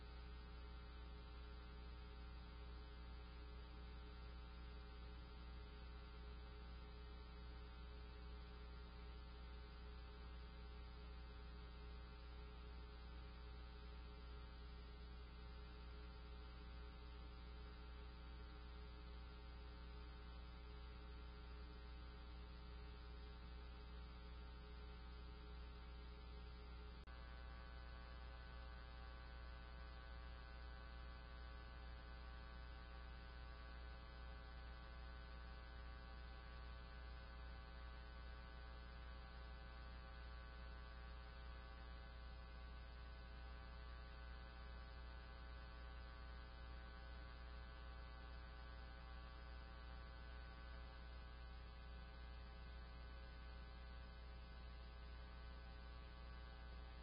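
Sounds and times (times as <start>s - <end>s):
faint electrical hum: 0.0s - 57.0s.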